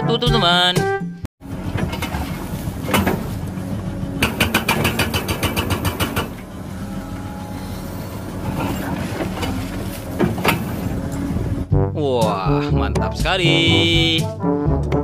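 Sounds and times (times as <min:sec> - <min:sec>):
diesel engine running: 0:01.4 - 0:11.7
hydraulic breaker hammering rock: 0:04.2 - 0:06.5.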